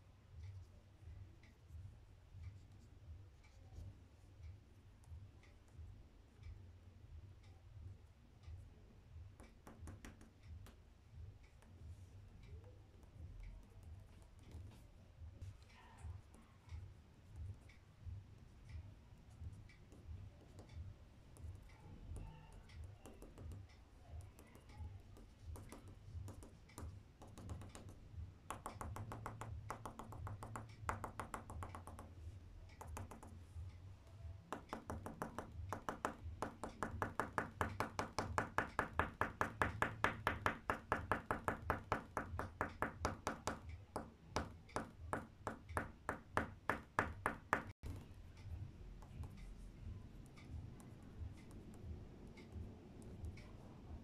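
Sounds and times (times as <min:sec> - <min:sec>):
pencil tapping on paper: 0:09.3 - 0:10.8, 0:19.4 - 0:33.7, 0:34.4 - 0:48.1.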